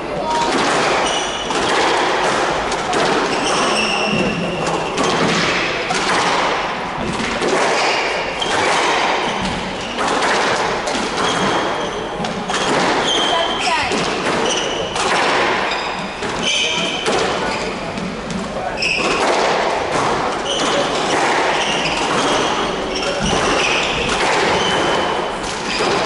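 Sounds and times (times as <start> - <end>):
squash ball hitting racket and walls: 0.0 - 26.0
shoes squeaking on wooden floor: 1.0 - 1.9, 3.2 - 5.9, 7.8 - 26.0.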